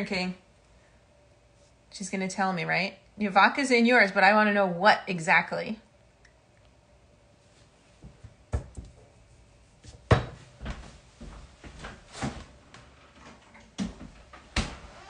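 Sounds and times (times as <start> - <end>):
knocks and clunks in kitchen: 8.0 - 9.2, 9.8 - 15.0.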